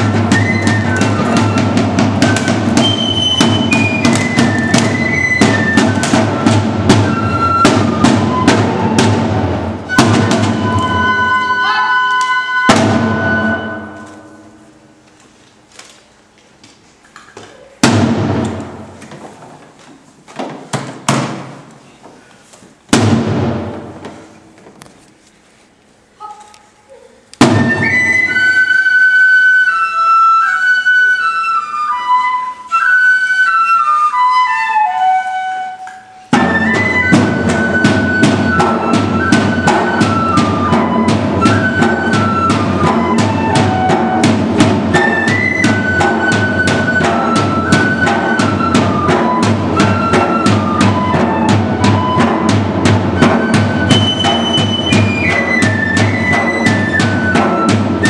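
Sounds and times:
drums and percussion beat: 0.0 - 14.5, 17.7 - 19.0, 22.9 - 24.3, 27.4 - 28.7, 36.3 - 58.0
flute melody: 0.0 - 14.9, 27.4 - 58.0.

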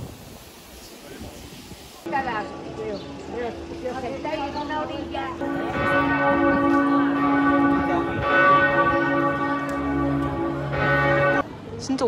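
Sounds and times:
church bells ringing: 3.5 - 11.6.

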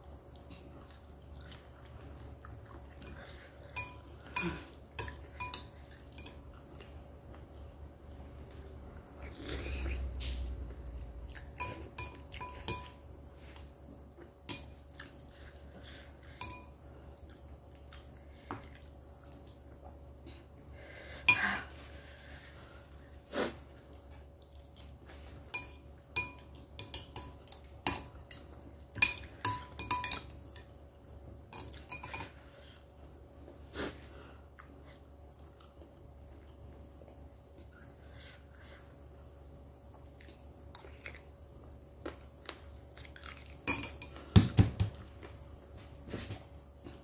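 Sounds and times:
spoon and chopsticks clinking bowl: 3.7 - 6.5, 11.6 - 13.0, 16.4 - 16.8, 25.5 - 30.7, 31.5 - 32.4, 43.6 - 44.2.

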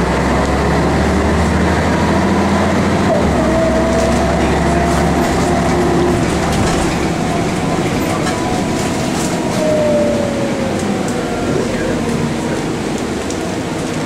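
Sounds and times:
bus diesel engine rumbling: 0.0 - 14.0
steady whine: 2.9 - 14.0.

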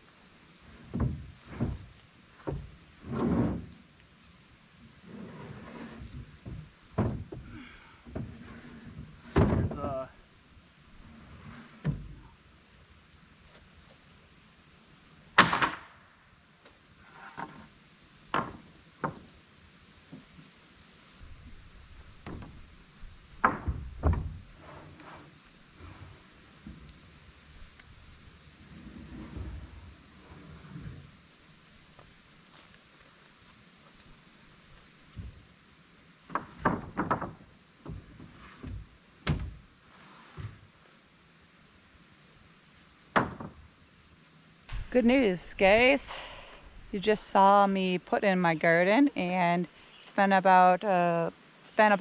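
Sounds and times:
wooden boards clattering: 8.1 - 9.9, 36.3 - 39.6.

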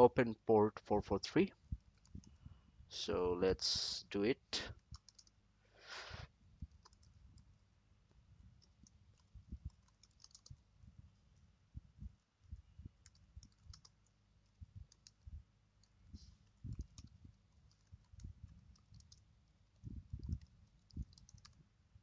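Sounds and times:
typing on computer keyboard: 4.8 - 5.4, 6.7 - 7.5, 8.6 - 10.6, 13.0 - 14.2, 14.9 - 15.2, 15.8 - 21.6.

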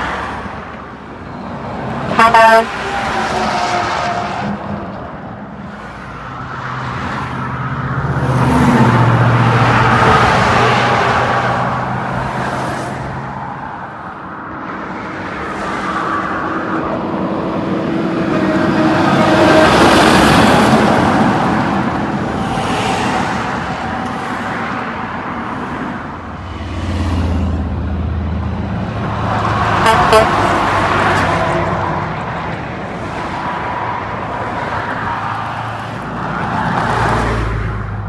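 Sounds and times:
highway traffic passing: 0.0 - 38.0
truck diesel engine droning: 26.0 - 32.3.

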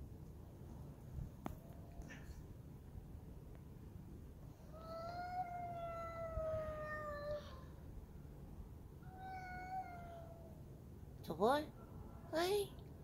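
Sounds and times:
cat meowing: 4.8 - 7.7, 9.0 - 10.6.

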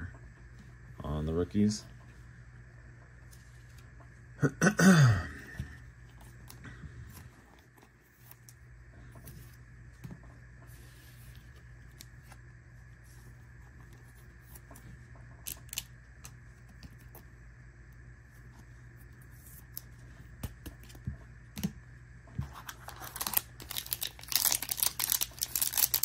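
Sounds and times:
cards rustling and tapping: 22.4 - 26.0.

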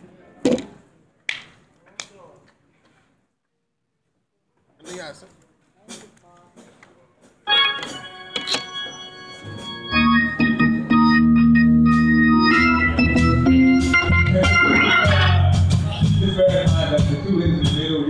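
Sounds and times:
organ playing gospel chords: 7.4 - 18.0.

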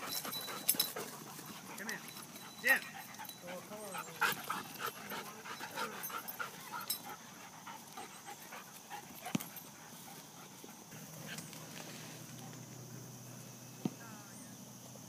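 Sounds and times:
dogs panting: 0.0 - 11.7.

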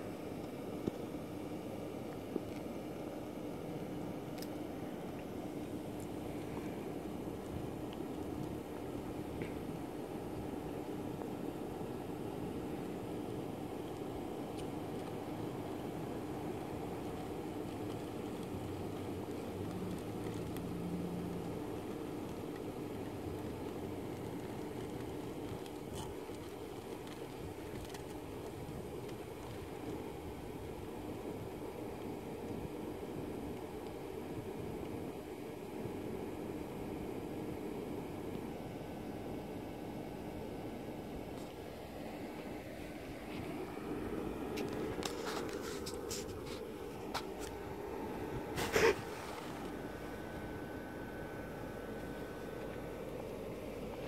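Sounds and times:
blower fan humming: 0.0 - 54.0
rustle: 40.6 - 54.0.

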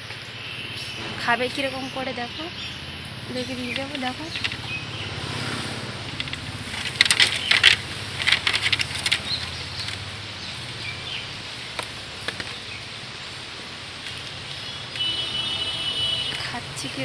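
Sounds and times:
grass rustling against wire mesh: 3.3 - 15.3.

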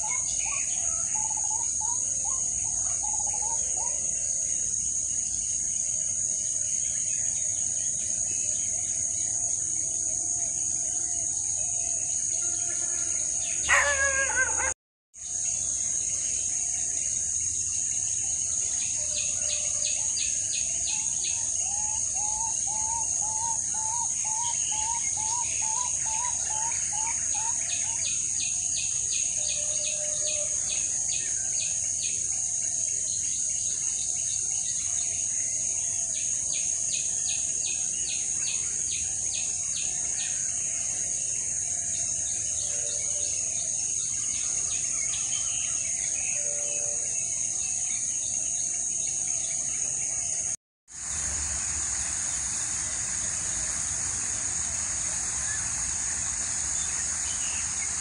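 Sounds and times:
high-pitched insect drone: 0.0 - 58.0
birds chirping: 13.5 - 14.8, 51.1 - 58.0.

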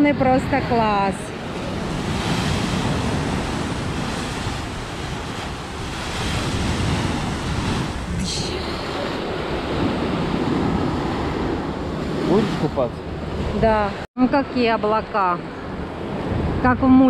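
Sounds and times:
surf breaking against seawall: 1.3 - 13.6.

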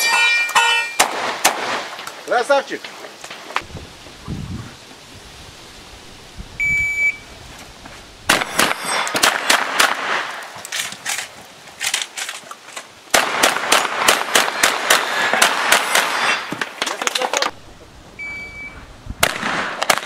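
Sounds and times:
shotgun shots: 0.9 - 2.0, 8.3 - 11.2, 13.1 - 16.9, 19.2 - 20.0
shot timer beep: 6.6 - 7.2, 18.2 - 18.8.

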